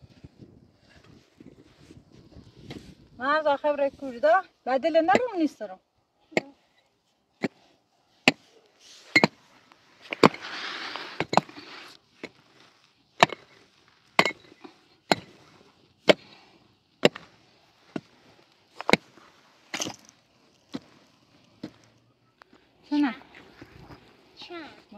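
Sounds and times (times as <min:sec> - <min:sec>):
hammer striking stony soil: 0:05.1 - 0:05.5, 0:07.4 - 0:08.5, 0:09.1 - 0:09.4, 0:10.0 - 0:21.9.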